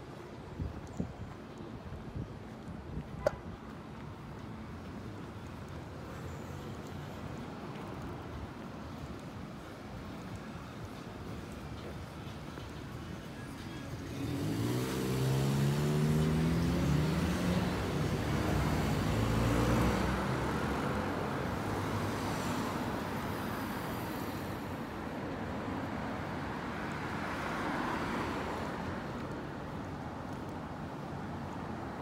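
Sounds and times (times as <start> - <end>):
hum of passing cars: 3.2 - 32.0.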